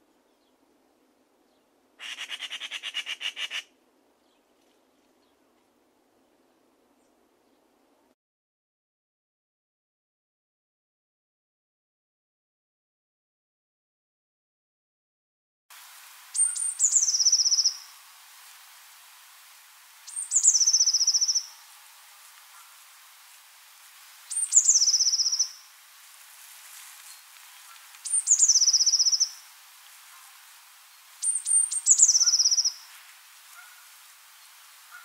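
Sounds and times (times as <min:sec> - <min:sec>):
small songbird singing trills: 0:16.3 - 0:18.0, 0:20.1 - 0:21.6, 0:24.3 - 0:25.7, 0:27.0 - 0:29.5, 0:30.9 - 0:32.9.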